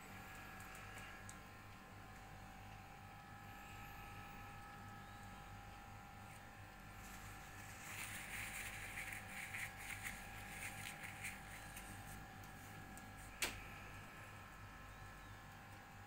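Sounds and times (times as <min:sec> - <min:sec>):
faint steady hum: 0:00.0 - 0:16.0
soft scratchy sounds: 0:05.9 - 0:13.4.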